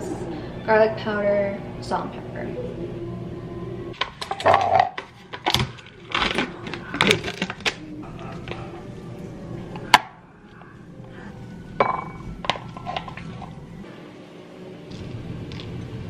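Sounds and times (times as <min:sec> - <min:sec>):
spoon knocking on tub: 0:11.8 - 0:12.2.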